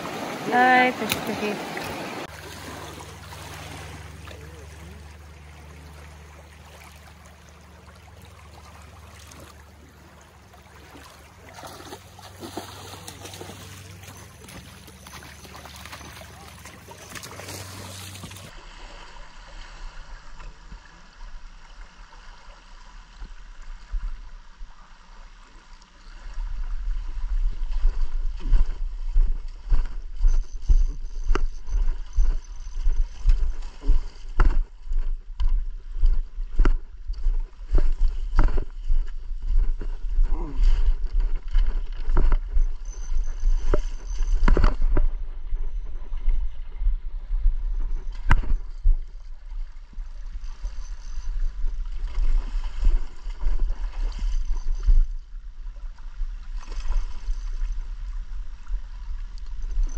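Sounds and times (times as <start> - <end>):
rushing river water: 0.0 - 27.9.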